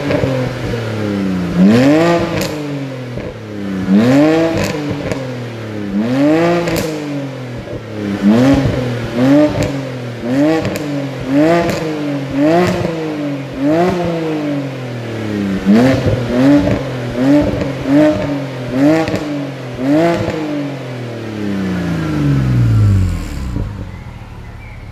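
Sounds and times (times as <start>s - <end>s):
car engine revving: 0.0s - 24.9s.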